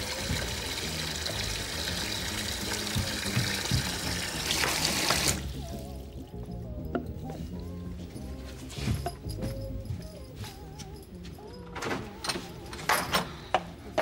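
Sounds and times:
tap running into basin: 0.0s - 5.4s
low background music: 0.0s - 14.0s.

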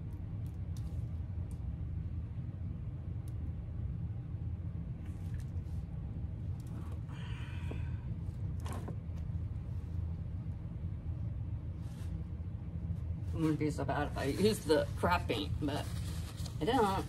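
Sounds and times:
steady low hum: 0.0s - 17.0s
faint rustles: 11.7s - 17.0s.

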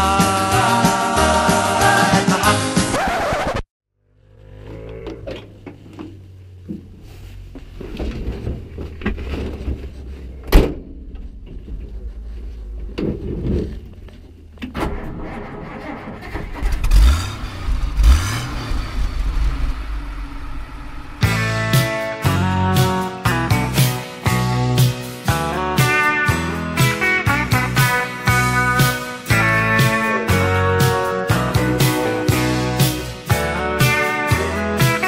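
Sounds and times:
truck engine running: 5.4s - 13.0s, 15.8s - 22.7s
engine revving: 15.1s - 21.8s.

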